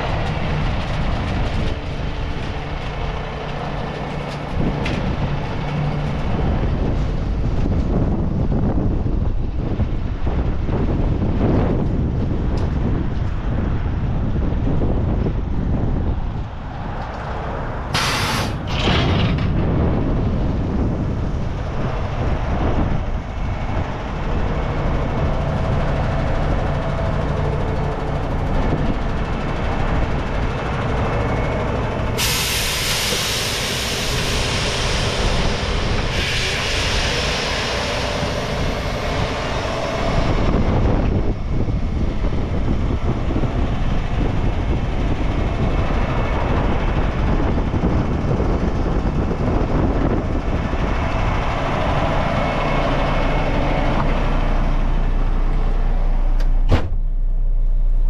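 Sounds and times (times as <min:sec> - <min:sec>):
air hissing: 0:17.9 - 0:18.8, 0:32.2 - 0:41.3
diesel truck engine idling: 0:19.6 - 0:58.0.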